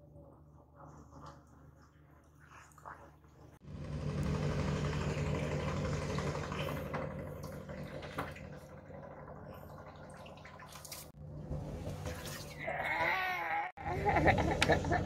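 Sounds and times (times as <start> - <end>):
engine humming: 3.6 - 10.1.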